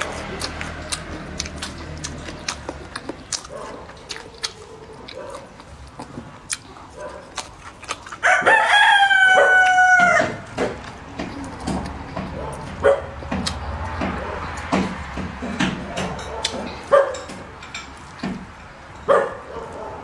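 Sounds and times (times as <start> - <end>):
eating sounds: 0.0 - 20.0
rooster crowing: 8.2 - 10.5.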